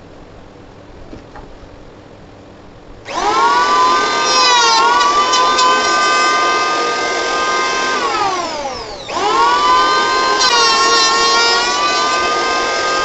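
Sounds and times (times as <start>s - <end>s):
electric hand planer whining: 3.1s - 13.0s.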